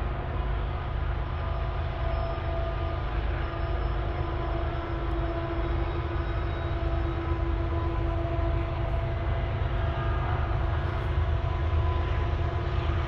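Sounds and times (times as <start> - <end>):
distant diesel locomotives droning: 0.0 - 13.0.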